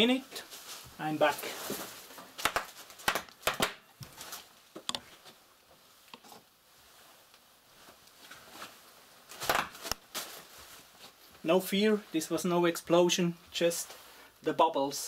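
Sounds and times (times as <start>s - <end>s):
bubble wrap popping: 1.8s - 4.6s.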